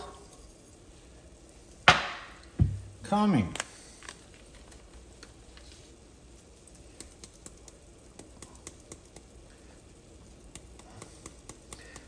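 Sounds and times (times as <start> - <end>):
low hiss: 0.0 - 12.0
spice ticking into a pot: 6.2 - 12.0.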